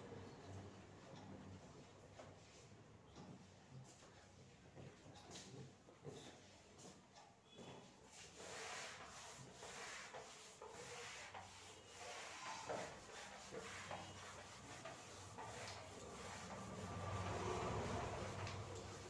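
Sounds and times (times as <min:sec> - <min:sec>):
wiping a whiteboard: 0:07.8 - 0:19.0.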